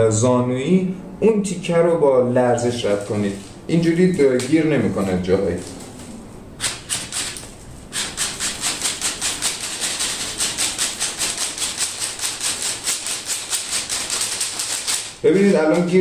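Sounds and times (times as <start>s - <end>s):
fish tape rattling in conduit: 6.6s - 16.0s
rapid even clicking: 6.6s - 16.0s.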